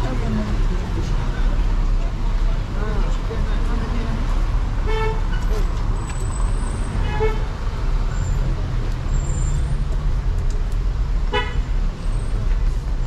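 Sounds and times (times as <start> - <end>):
traffic rumble: 0.0 - 13.0
vehicle horn toots: 11.3 - 11.6.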